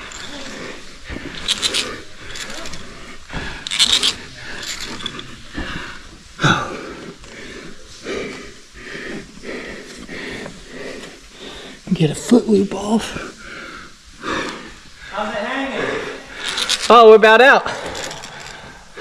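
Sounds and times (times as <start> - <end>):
climbing gear scraping and clicking: 0.0 - 6.2, 16.4 - 17.0, 17.6 - 19.0.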